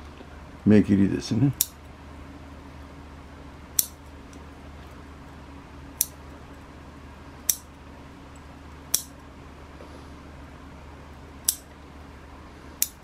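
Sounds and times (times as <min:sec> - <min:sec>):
scissors snipping shoots: 0:11.5 - 0:11.7, 0:12.8 - 0:13.0.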